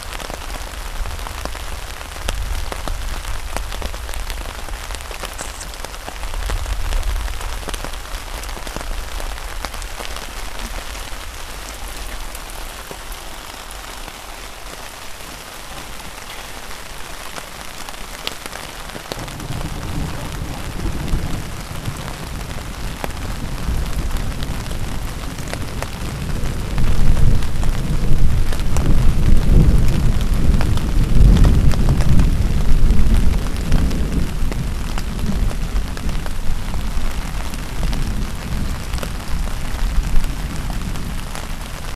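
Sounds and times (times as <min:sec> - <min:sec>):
rain hissing: 0:00.0 - 0:41.9
rolling thunder: 0:15.9 - 0:41.9.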